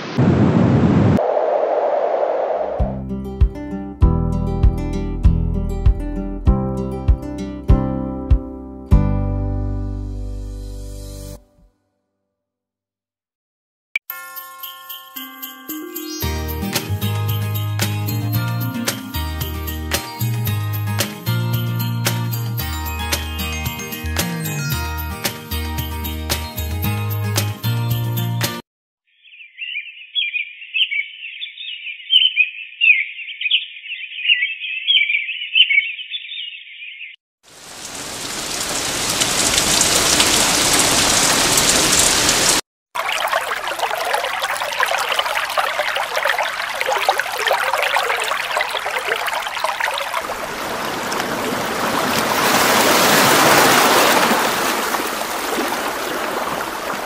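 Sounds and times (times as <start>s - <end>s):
steady rushing rain: 37.5s - 42.6s, 50.1s - 57.0s
thin high chirping: 43.0s - 50.2s
surf breaking: 43.4s - 57.0s.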